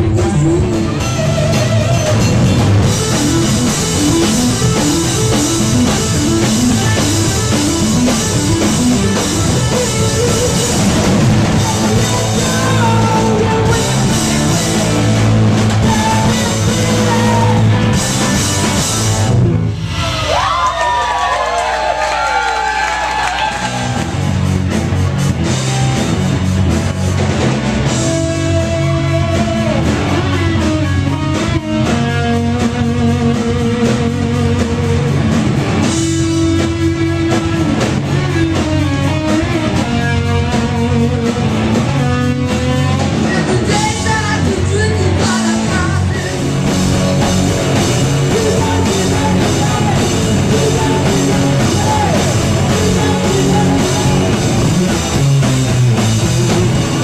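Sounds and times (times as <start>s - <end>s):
drum kit: 0.0s - 57.0s
electric guitars: 0.0s - 57.0s
person singing: 9.6s - 18.3s, 43.1s - 54.9s.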